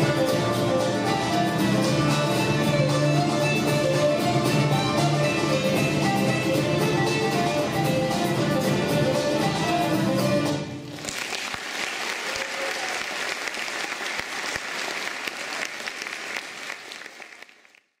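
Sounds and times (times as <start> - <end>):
music: 0.0 - 10.9
audience clapping: 10.8 - 18.0.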